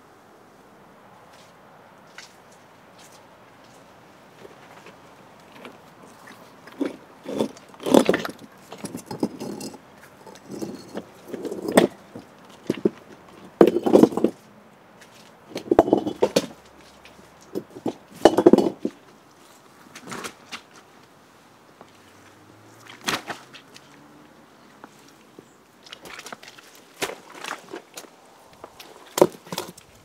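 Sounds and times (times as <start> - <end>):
stones knocking and scraping: 4.4 - 19.1, 24.8 - 29.9.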